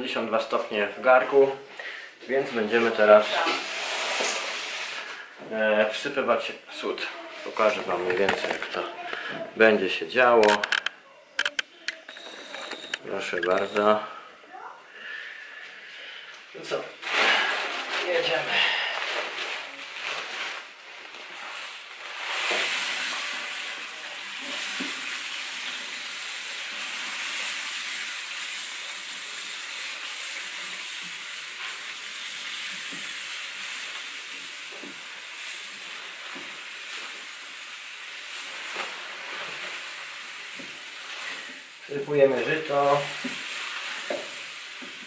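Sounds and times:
grain pouring into water: 0:21.4 - 0:44.9.

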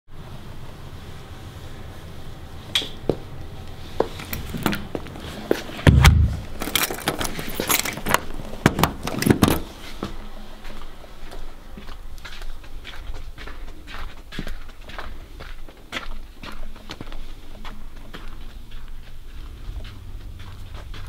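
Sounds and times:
heavy door thump: 0:05.8 - 0:06.6
door clicks and knocks: 0:05.9 - 0:07.2.

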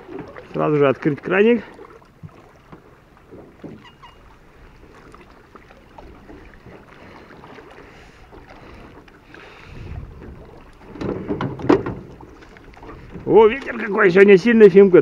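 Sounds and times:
wind noise: 0:09.5 - 0:13.6.

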